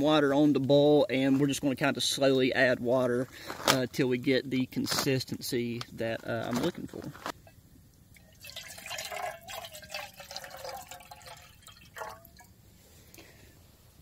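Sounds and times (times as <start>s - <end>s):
water pouring into metal cup: 8.1s - 12.6s.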